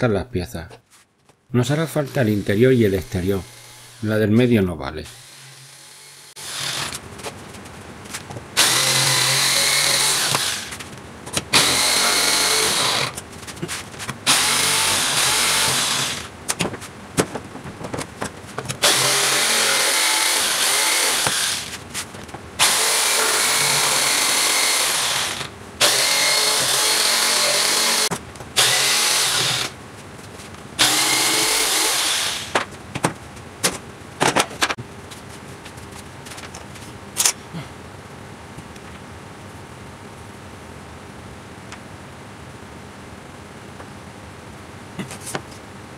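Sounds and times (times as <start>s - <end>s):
jigsaw cutting wooden board: 5.1s - 7.0s, 8.6s - 10.8s, 11.5s - 13.2s, 14.2s - 16.3s, 18.8s - 21.8s, 22.6s - 29.8s, 30.8s - 32.6s.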